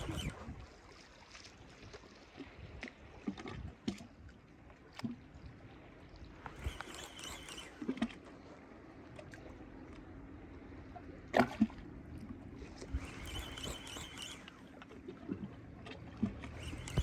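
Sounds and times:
seawater lapping: 0.0s - 17.0s
faint clicks: 6.4s - 8.2s, 13.0s - 14.9s, 16.3s - 17.0s.

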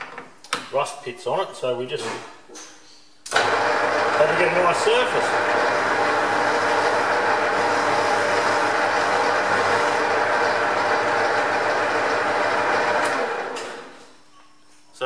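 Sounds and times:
metal lathe cutting steel: 3.4s - 13.4s.

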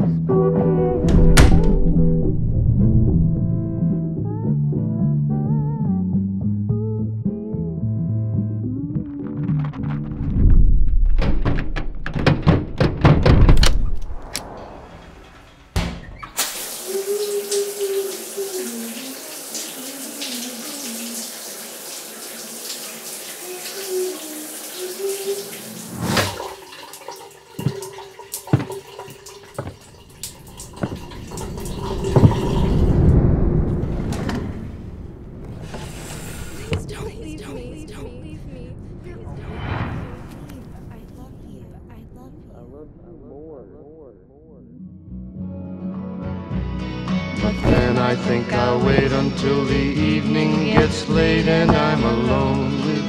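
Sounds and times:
low rumble: 0.9s - 4.6s, 10.0s - 12.0s, 31.1s - 35.7s, 36.6s - 45.1s
deep thumps and clicks: 1.0s - 3.6s, 9.4s - 14.6s, 47.5s - 48.1s, 50.7s - 52.3s
knocks: 11.2s - 13.8s, 28.5s - 29.9s, 50.8s - 52.1s
shower water hissing: 16.3s - 33.3s, 35.6s - 36.9s.

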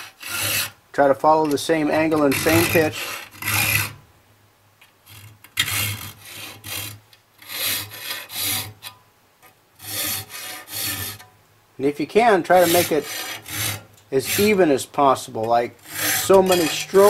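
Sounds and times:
file rasping on saw teeth: 0.0s - 0.8s, 2.0s - 4.0s, 5.6s - 8.8s, 9.8s - 11.2s, 12.5s - 14.6s, 15.8s - 17.0s.

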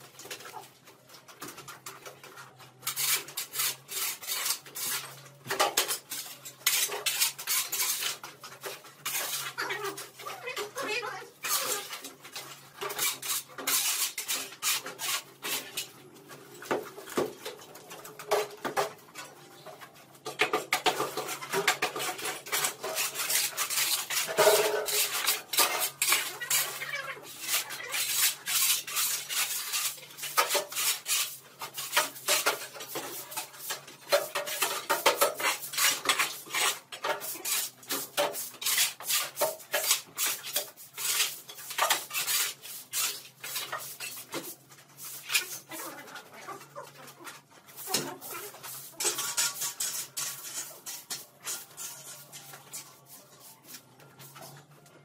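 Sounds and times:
shovels scraping on concrete: 0.0s - 55.0s
broom sweeping: 47.7s - 54.7s.

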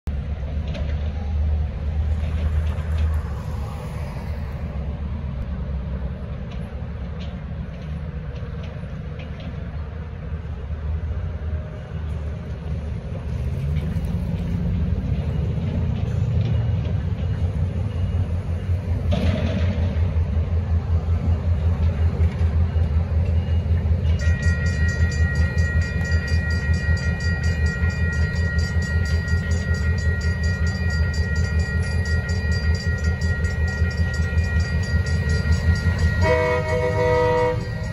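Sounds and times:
road traffic passing: 0.1s - 37.9s
railroad crossing bell ringing: 11.5s - 37.9s.

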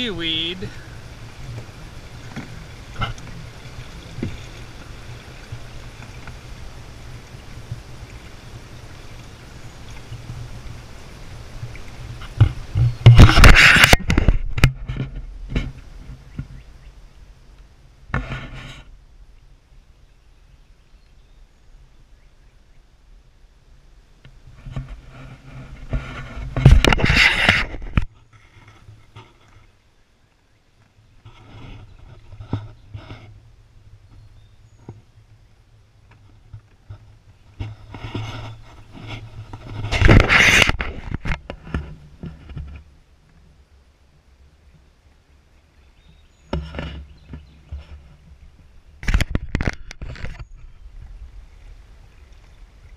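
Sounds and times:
camera handling knocks and rubbing: 12.3s - 16.5s, 25.8s - 28.1s
camera housing rubbing scrape: 12.4s - 15.8s, 24.7s - 28.1s, 37.6s - 42.8s.

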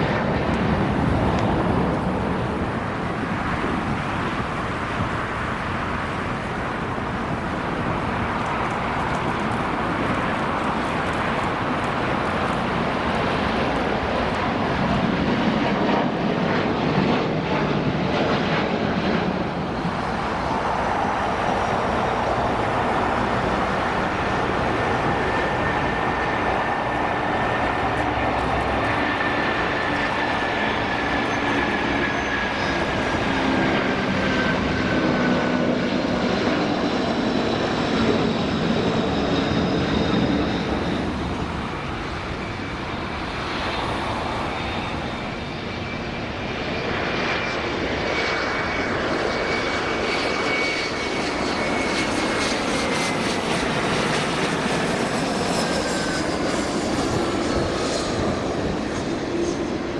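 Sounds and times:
high fan whine: 0.0s - 15.4s, 18.8s - 46.6s
jet engines at takeoff: 0.0s - 59.9s.

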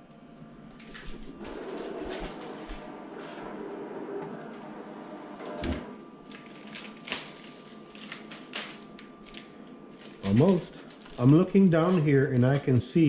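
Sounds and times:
plotter motors humming: 0.0s - 6.7s
film crinkling and snapping: 6.2s - 12.8s.

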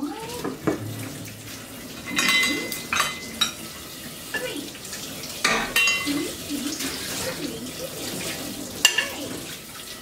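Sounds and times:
dishes and cutlery clinking: 0.4s - 4.7s, 5.4s - 7.1s, 8.0s - 10.0s.

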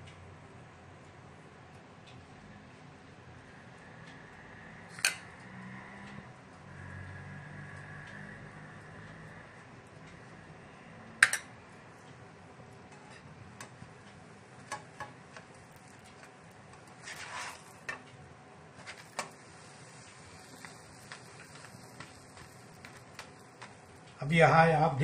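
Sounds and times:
faint hiss: 18.7s - 25.0s.

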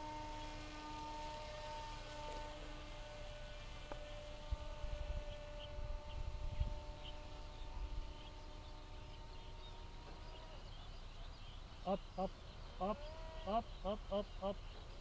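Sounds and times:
model plane motor whine: 0.0s - 15.0s
wind rumble on microphone: 3.9s - 9.3s
small birds chirping: 3.9s - 15.0s.

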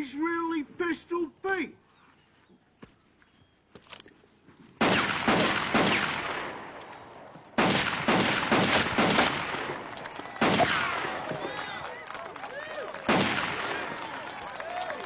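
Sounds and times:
rapid pistol shots: 4.8s - 6.8s, 7.6s - 11.2s, 13.1s - 13.8s.

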